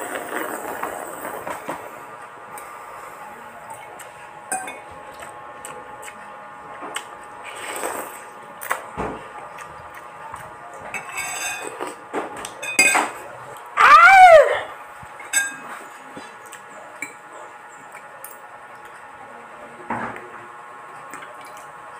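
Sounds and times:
slurping noodles: 0.0 - 1.8, 7.4 - 8.3
cutlery clinking on ceramic bowl: 4.5 - 4.8, 11.0 - 12.0, 12.6 - 13.2, 15.3 - 15.7
man yelling: 13.8 - 14.7.

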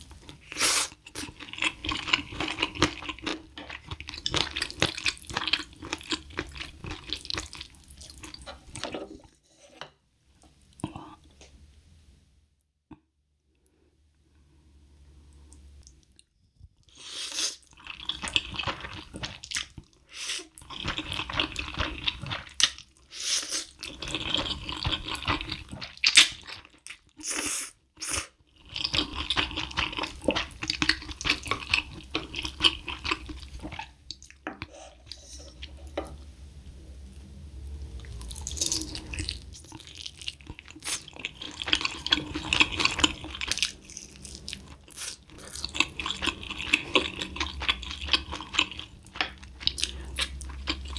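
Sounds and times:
slurping noodles: 0.4 - 9.8
wet chewing mouth sounds: 28.0 - 35.8, 38.0 - 50.9.

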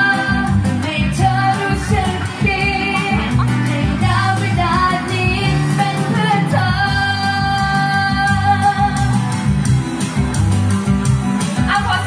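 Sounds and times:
woman singing a pop ballad: 0.0 - 9.4, 11.6 - 12.0
strummed acoustic guitar: 0.0 - 12.0.

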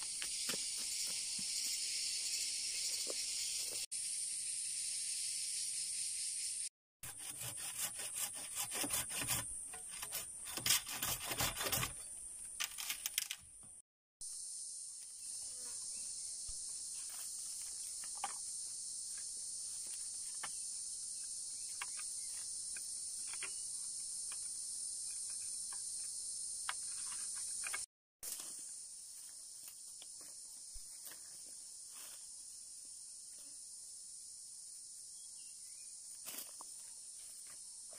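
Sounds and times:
high-pitched insect chorus: 0.0 - 6.7, 14.2 - 37.9.

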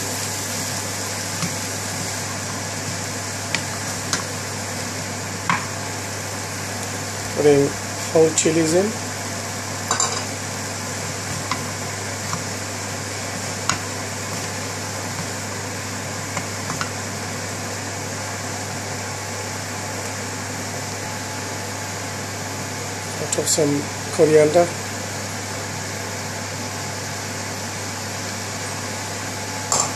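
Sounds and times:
steady hum and hiss: 0.0 - 29.9
wooden spoon stirring in a pan: 0.1 - 5.8, 10.3 - 17.6.

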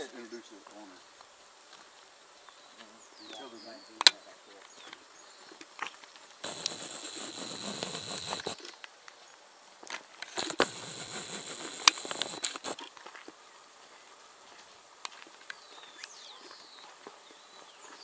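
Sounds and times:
sharp clicks: 6.4 - 8.6, 10.4 - 12.8.

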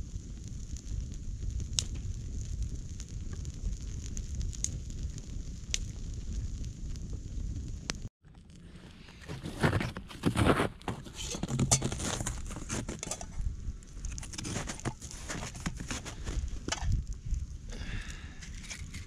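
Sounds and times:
campfire crackling: 0.0 - 19.0
footsteps crunching in snow: 8.9 - 13.3, 14.2 - 16.7.

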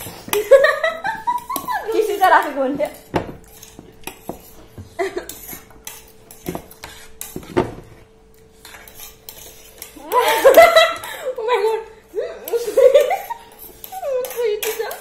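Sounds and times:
forks clinking on plates: 12.5 - 15.0.

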